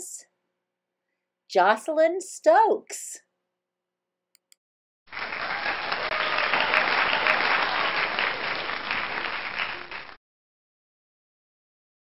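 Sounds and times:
crowd applause: 5.1 - 10.2.

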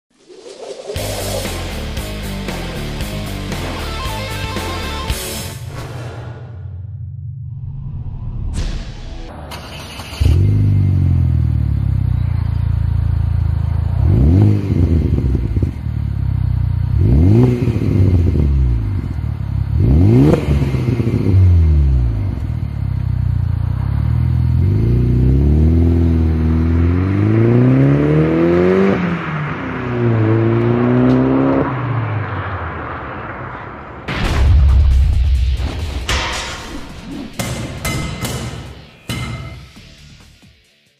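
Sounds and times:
car engine revving: 9.3 - 34.1
car driving off: 9.3 - 34.4.

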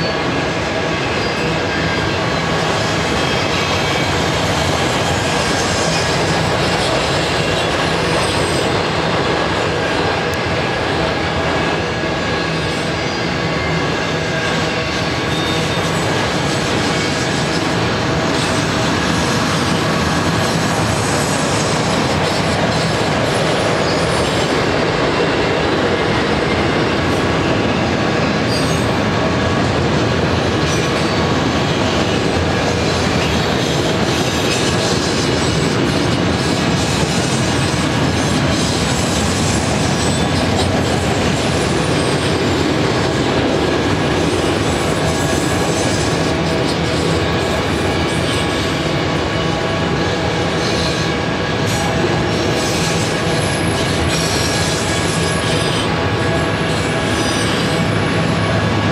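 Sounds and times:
train wheels rumbling on rails: 0.0 - 58.9
wheel squeal: 15.3 - 17.5.

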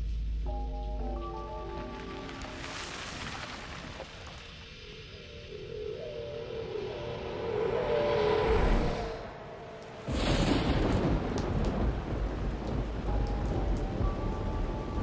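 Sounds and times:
hum with steady tones: 0.0 - 2.1, 11.7 - 15.0
heavy rain: 1.7 - 4.7, 10.0 - 15.0
thunderclap: 10.0 - 15.0
low rolling thunder: 10.1 - 15.0.

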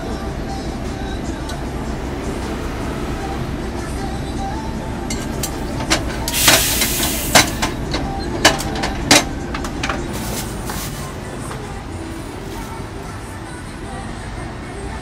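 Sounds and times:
metal clanks on griddle: 5.1 - 10.1
short hiss: 6.3 - 7.5.

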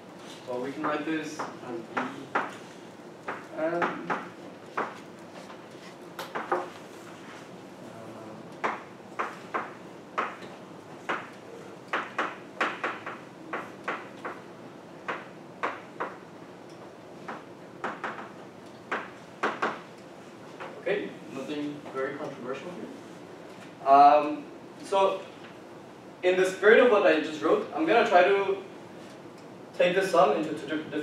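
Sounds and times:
chalk tapping on a blackboard: 0.8 - 2.7, 3.3 - 5.6, 8.6 - 14.4, 15.1 - 16.2, 17.3 - 18.3, 18.9 - 19.8.

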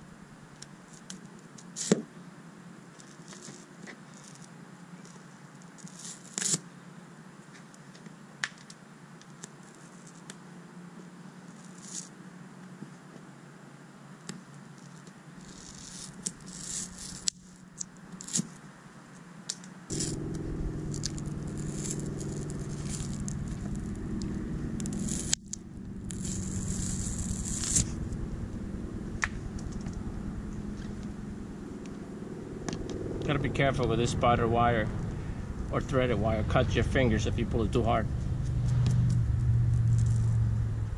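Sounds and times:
fishing line scratching through glue: 15.4 - 17.4, 21.6 - 28.0
mechanical hum: 19.9 - 40.9.

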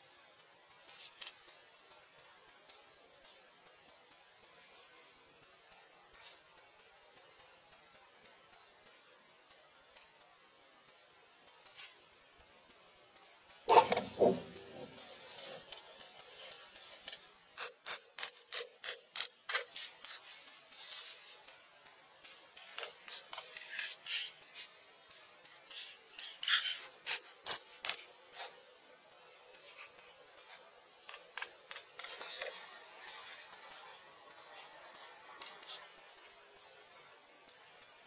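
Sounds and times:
marker scratching on paper: 13.7 - 15.7.

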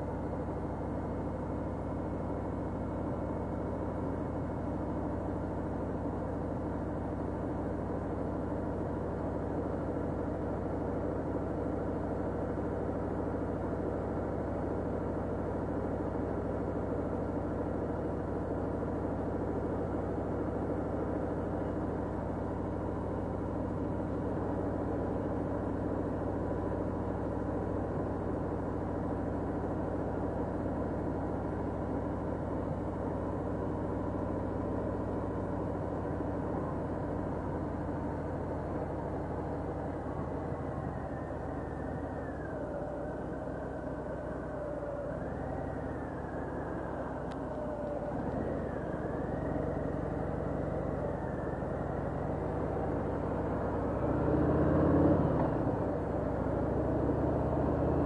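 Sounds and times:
motorcycle engine rumbling: 27.3 - 54.0.

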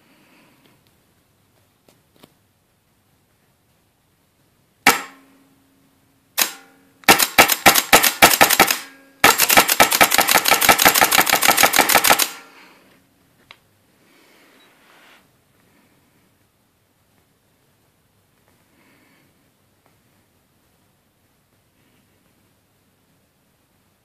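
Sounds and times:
paintball marker shots: 4.9 - 5.2, 6.4 - 12.5.

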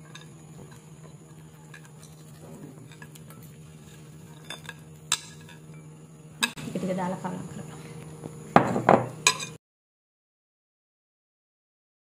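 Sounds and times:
spatula mixing batter: 0.0 - 5.8.

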